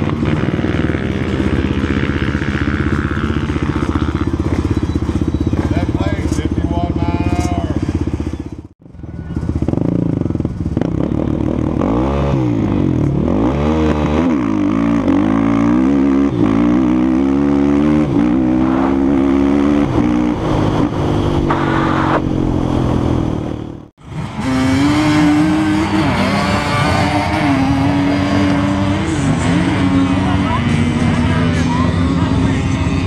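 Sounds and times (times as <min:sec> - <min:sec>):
engine running at steady pitch: 0:00.0 - 0:33.0
engine at full throttle shifting gears: 0:09.5 - 0:33.0.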